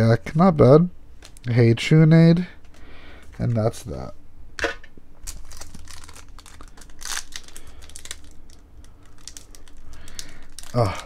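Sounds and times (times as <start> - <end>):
foil wrapper crinkling: 5.2 - 11.0.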